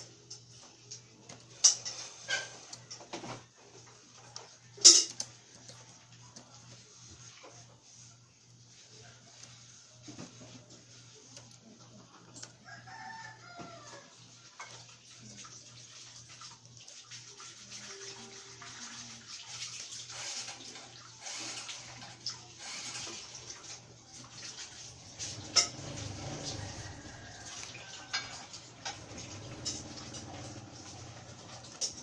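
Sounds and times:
rooster crowing: 12.6 - 14.2, 25.9 - 29.0.

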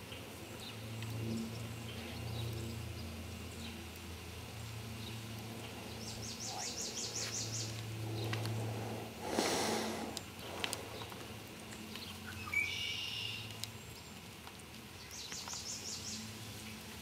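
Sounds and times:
horse snorting: 9.2 - 10.8.

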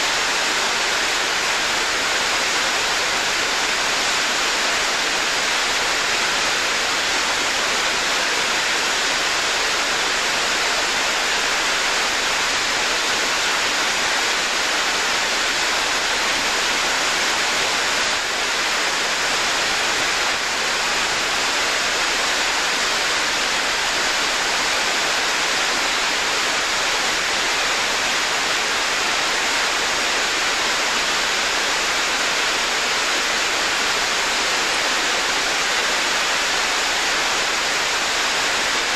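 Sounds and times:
waterfall rushing: 0.0 - 38.9.

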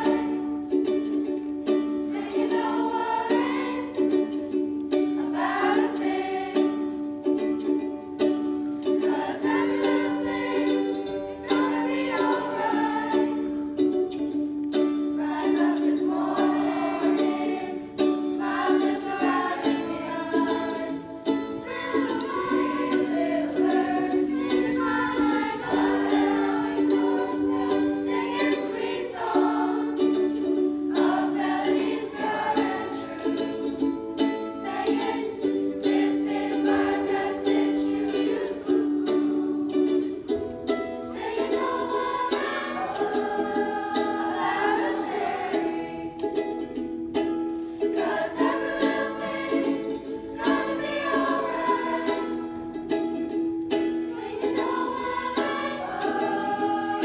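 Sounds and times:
youth chorus singing: 0.0 - 7.8, 8.6 - 57.0
instrumental accompaniment: 0.0 - 57.0.

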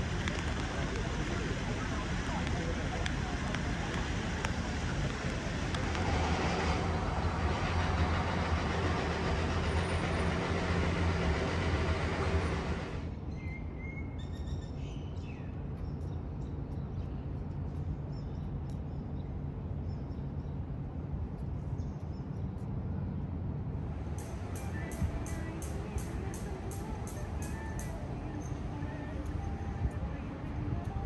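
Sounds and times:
loud steady rushing noise: 0.0 - 13.2, 23.3 - 31.0
low hum: 0.0 - 13.3, 15.5 - 31.0.

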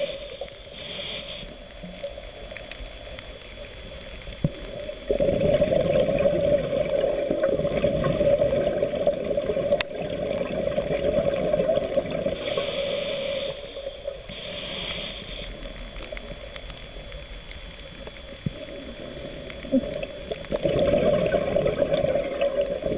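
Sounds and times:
regulator hissing: 0.0 - 1.9, 12.0 - 20.5
exhaled bubbles underwater: 3.4 - 14.6, 15.4 - 22.9.

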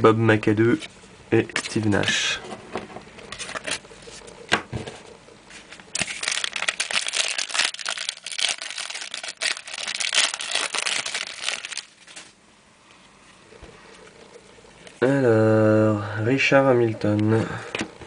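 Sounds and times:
plastic wrapper crinkling: 5.9 - 12.4.

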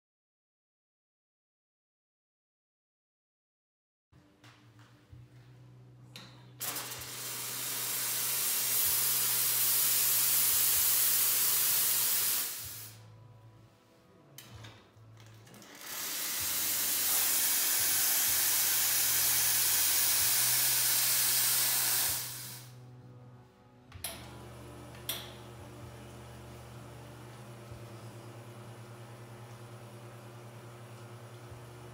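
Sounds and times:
espresso machine steam wand hissing: 6.6 - 13.0, 15.7 - 22.8.

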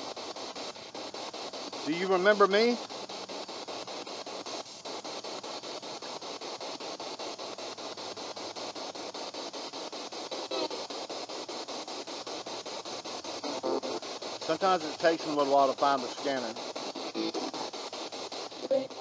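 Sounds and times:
pulsing radio static: 0.0 - 19.0.

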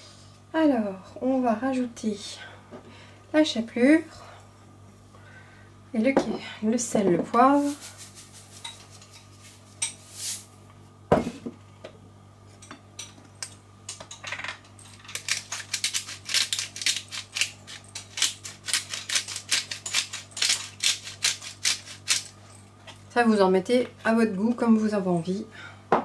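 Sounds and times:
pepper mill grinding clicks: 14.8 - 22.3.

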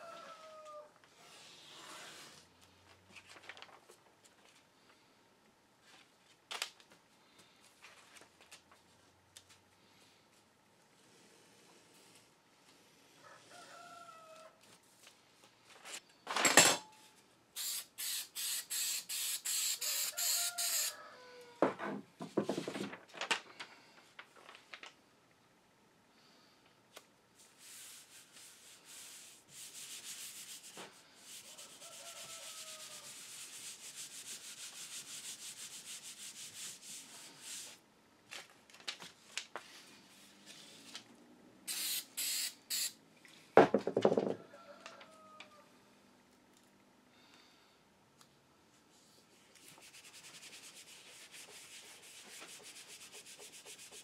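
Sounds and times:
paper rustling and scraping on board: 49.6 - 54.0.

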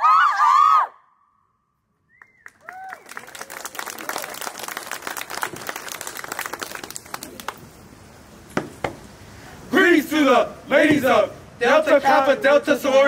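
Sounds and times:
crowd applauding: 2.1 - 7.7.

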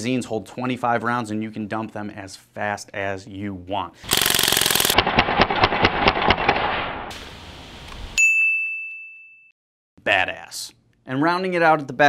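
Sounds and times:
bb rifle full-auto burst: 4.0 - 7.1
bright metallic ding: 8.2 - 9.5.

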